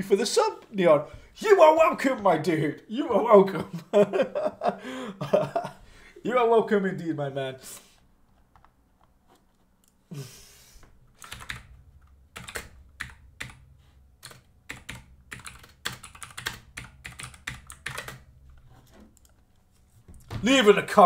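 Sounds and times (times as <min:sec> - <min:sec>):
computer keyboard typing: 0:11.2 - 0:18.3, 0:19.1 - 0:19.4.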